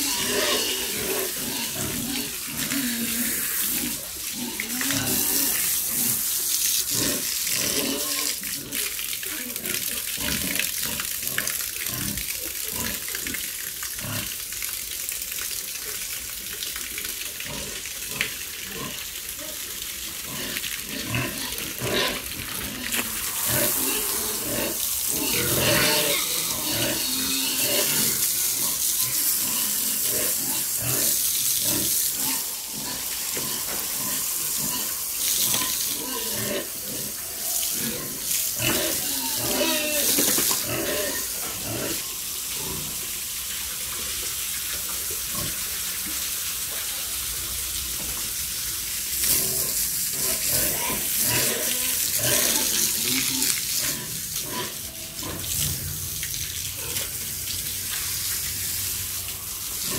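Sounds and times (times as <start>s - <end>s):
pigs grunting: 0.0s - 8.8s, 20.2s - 43.0s, 49.2s - 56.1s
water from a hose splashing: 0.0s - 59.9s.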